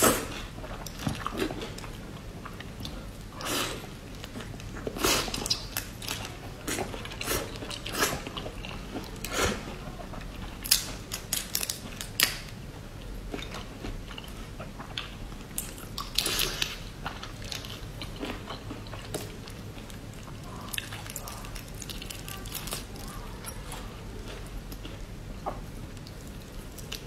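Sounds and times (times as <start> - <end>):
prawn shells cracking: 10.6 - 12.5.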